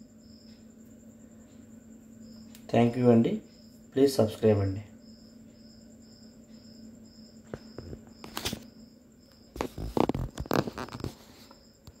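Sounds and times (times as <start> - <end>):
faint high ticks: 2.4 - 2.7.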